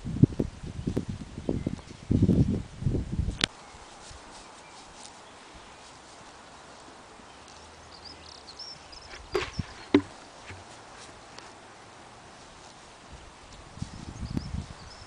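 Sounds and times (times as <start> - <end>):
small bird chirping: 7.3 - 10.1, 13.8 - 15.0
short knock: 9.1 - 10.6.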